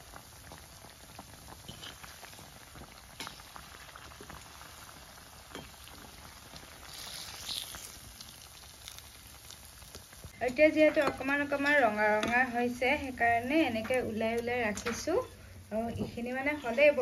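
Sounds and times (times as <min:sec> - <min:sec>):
small crackles and pops: 0:00.0 - 0:10.4
oil sizzling in deep fryer: 0:00.0 - 0:17.0.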